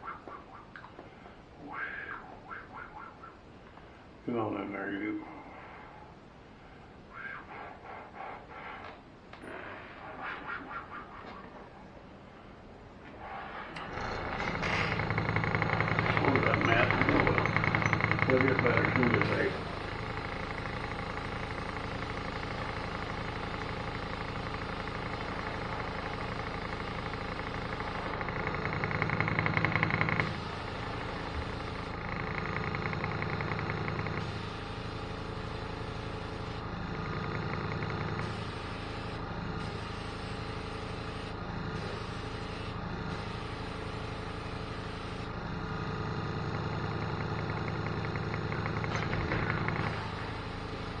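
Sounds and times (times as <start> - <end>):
electric air compressor running: 13.5 - 51.0.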